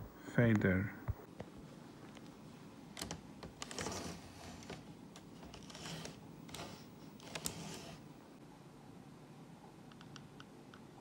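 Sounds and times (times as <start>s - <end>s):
scraping rustles: 3.6s - 8.1s.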